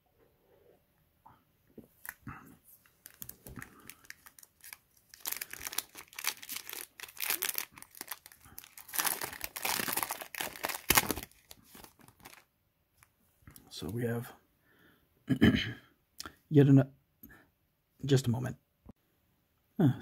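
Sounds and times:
foil wrapper tearing and crinkling: 0:02.9 - 0:12.4.

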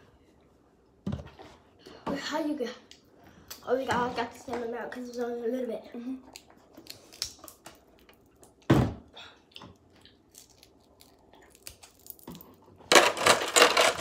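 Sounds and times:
crab shell cracking: 0:06.8 - 0:08.5, 0:09.8 - 0:12.3.

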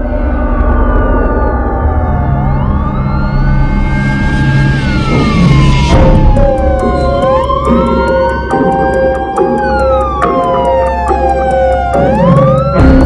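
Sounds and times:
siren wailing: 0:00.0 - 0:13.0
steady tones: 0:04.6 - 0:13.0
regular ticking beat: 0:05.5 - 0:13.0.

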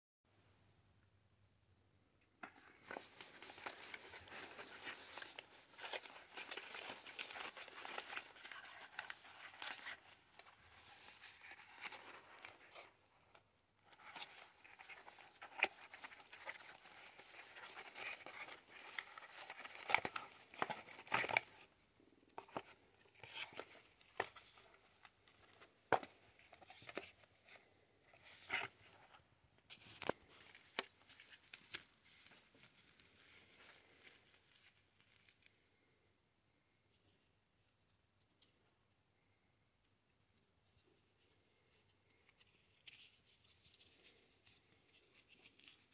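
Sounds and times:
packaging crinkling and rustling: 0:02.5 - 0:35.5.

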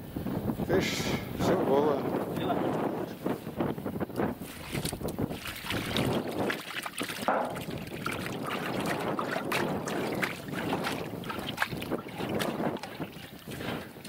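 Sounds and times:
water and fish splashing onto grate: 0:04.4 - 0:14.0
small knocks: 0:07.3 - 0:07.8.

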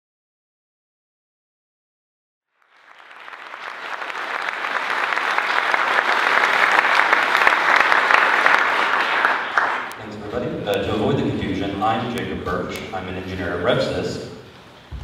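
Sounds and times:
audience applauding: 0:02.5 - 0:10.8.

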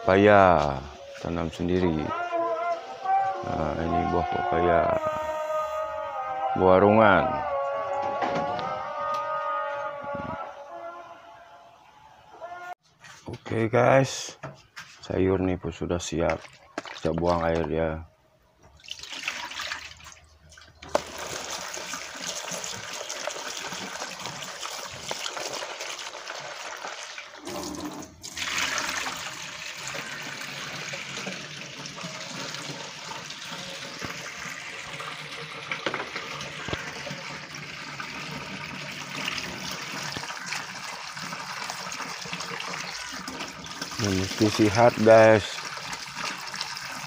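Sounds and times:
water splashing into sink: 0:16.2 - 0:17.7, 0:18.7 - 0:47.0
tap running into sink: 0:35.7 - 0:36.9.

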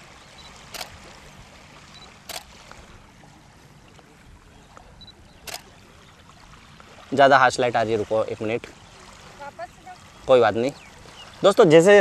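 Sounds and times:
camera focus beep: 0:00.4 - 0:01.0, 0:01.9 - 0:02.5, 0:05.0 - 0:05.7
camera shutter click: 0:00.7 - 0:01.0, 0:02.3 - 0:02.5, 0:05.4 - 0:05.7.

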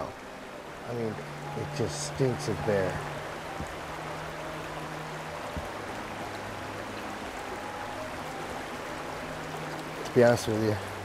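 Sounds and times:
stream running over rocks: 0:00.0 - 0:11.0.

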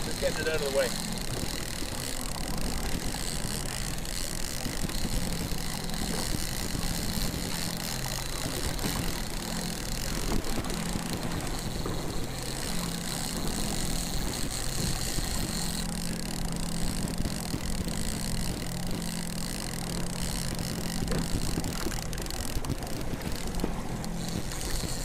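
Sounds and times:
boat motor running: 0:00.0 - 0:25.0
wind noise on microphone: 0:01.2 - 0:16.0.

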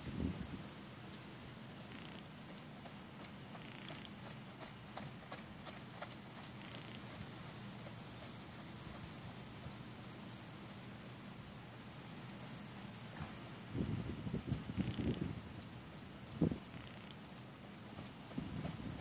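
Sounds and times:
crickets chirping: 0:00.0 - 0:19.0
high hiss of insects: 0:00.0 - 0:19.0.

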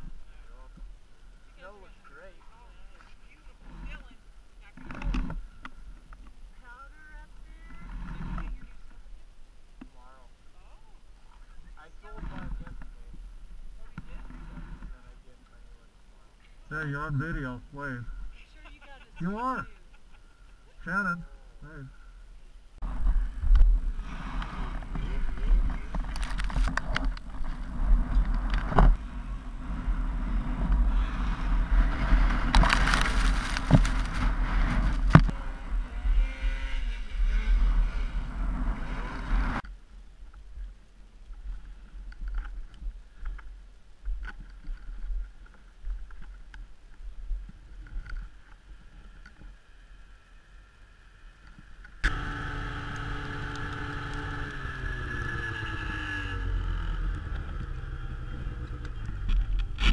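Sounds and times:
snowmobile engines running: 0:16.7 - 0:19.8, 0:22.8 - 0:39.6, 0:48.8 - 0:59.9.

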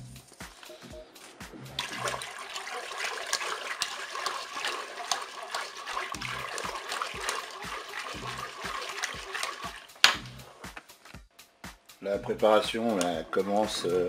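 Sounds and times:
whisk wires clicking against bowl: 0:01.8 - 0:10.2, 0:12.9 - 0:13.9
liquid sloshing in a bowl: 0:01.8 - 0:10.3.

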